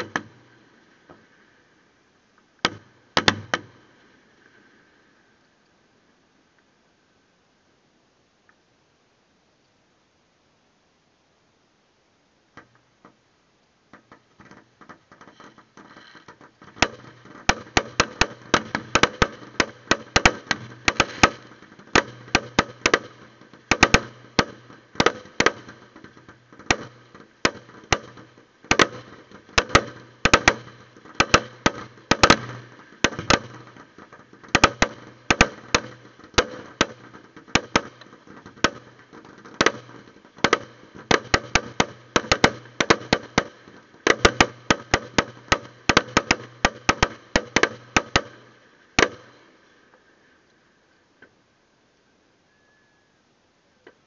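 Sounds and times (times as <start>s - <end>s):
fireworks bangs: 0.0s - 1.4s, 2.6s - 4.6s, 13.9s - 49.8s.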